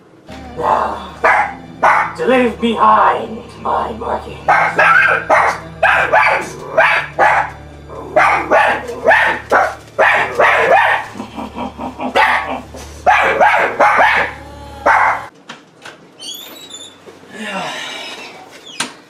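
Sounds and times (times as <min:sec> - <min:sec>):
steady low hum: 0:00.0 - 0:15.3
dog barking: 0:01.2 - 0:02.2, 0:04.5 - 0:07.6, 0:08.2 - 0:11.1, 0:12.2 - 0:15.3.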